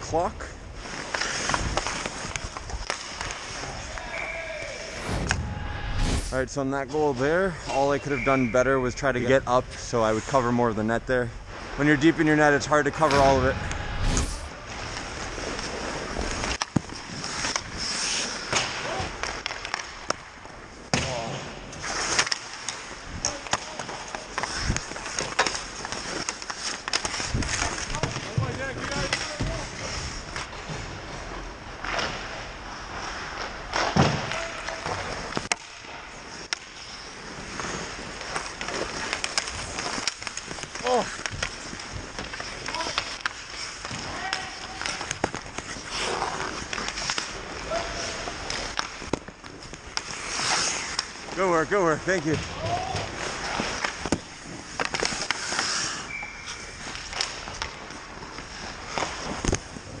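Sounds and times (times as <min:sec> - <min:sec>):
hockey sticks and puck clacking: 0:00.0 - 0:05.4, 0:06.8 - 0:13.8, 0:14.6 - 1:00.0
skates scraping ice: 0:00.0 - 1:00.0
heavy thud: 0:04.9 - 0:06.4.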